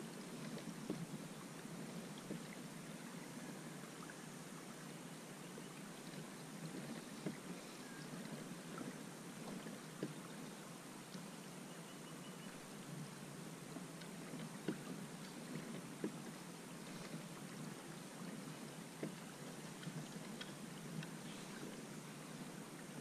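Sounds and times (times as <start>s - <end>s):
water lapping against a hull: 0.0s - 23.0s
light knocks on a boat: 0.4s - 1.2s, 2.2s - 2.6s, 6.0s - 7.6s, 8.2s - 10.4s, 14.0s - 16.4s, 19.0s - 21.7s.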